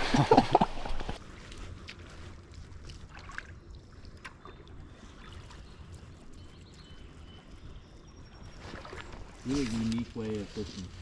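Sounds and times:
wind and moving water rumble: 0.0s - 11.0s
small splashes and clicks: 1.4s - 6.7s.

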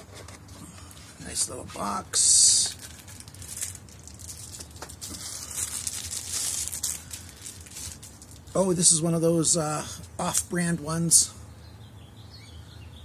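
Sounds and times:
plastic packaging rustling: 0.0s - 8.6s
plastic crinkling: 2.4s - 8.6s.

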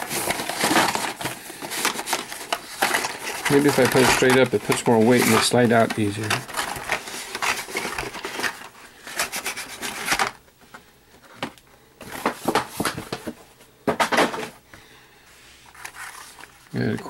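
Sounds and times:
blister packs scraping and clacking: 0.0s - 10.4s
loud clatter of packs: 0.0s - 10.4s.

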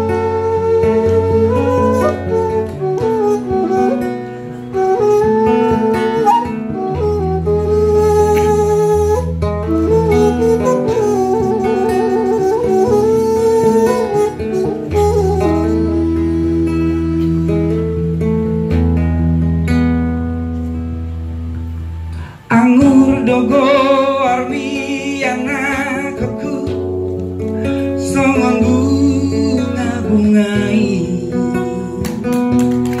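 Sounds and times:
acoustic guitar accompaniment: 0.0s - 33.0s
man singing with vibrato: 22.2s - 32.6s.

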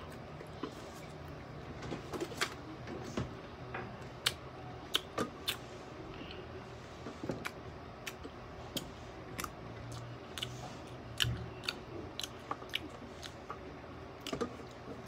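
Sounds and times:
crunchy food chewing: 7.4s - 15.0s.

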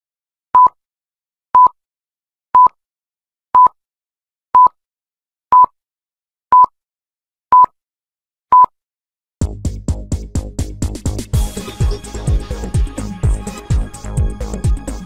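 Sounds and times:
electronic countdown beeps: 5.5s - 5.7s, 6.5s - 6.7s, 7.5s - 7.7s, 8.5s - 8.7s.

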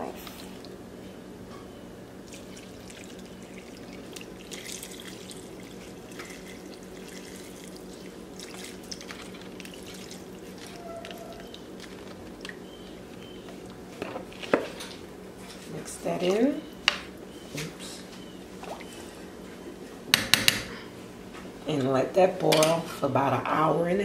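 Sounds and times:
faint steady hum: 0.0s - 24.0s
broth pouring into a pot: 2.3s - 10.8s.

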